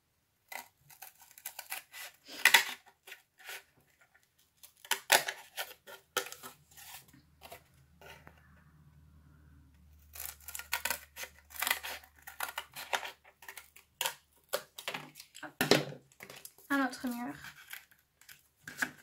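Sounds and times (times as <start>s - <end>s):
scissors cutting cardboard: 0.5s - 8.4s, 9.9s - 15.1s.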